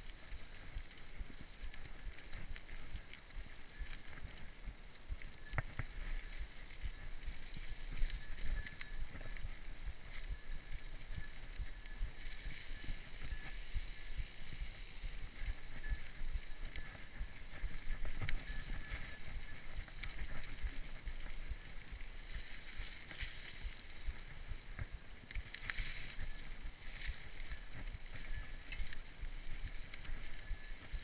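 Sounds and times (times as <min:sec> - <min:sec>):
bike rolling on dirt trail: 0:00.0 - 0:31.0
bike rattling over bumps: 0:12.4 - 0:23.7.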